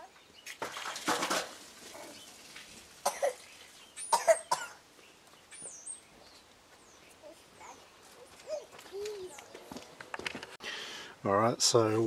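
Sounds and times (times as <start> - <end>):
small bird chirping: 3.4 - 9.8.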